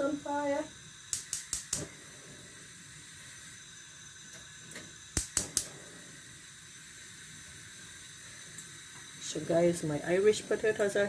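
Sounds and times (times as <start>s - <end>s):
faint gas hiss: 0.0s - 11.0s
gas igniter clicking: 1.0s - 2.0s, 4.2s - 5.9s, 7.7s - 9.2s, 10.6s - 11.0s.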